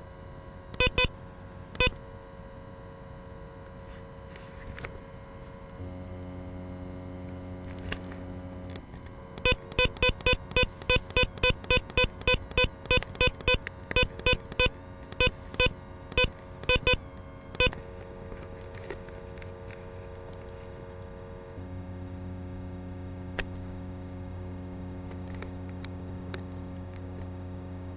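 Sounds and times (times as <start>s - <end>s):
low electrical buzz: 0.0s - 27.9s
short electronic beeps: 0.8s - 1.1s, 1.8s - 2.0s, 9.4s - 17.8s.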